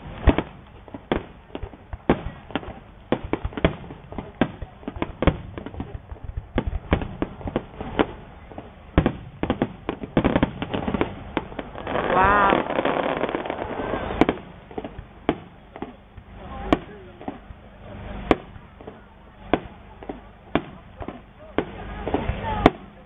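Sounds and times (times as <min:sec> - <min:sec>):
firework shells bursting: 0:00.0 - 0:17.5.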